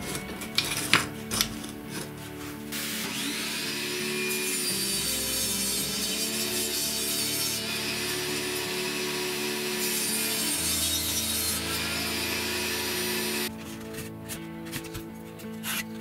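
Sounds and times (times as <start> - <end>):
table saw cutting wood: 2.0 - 13.5.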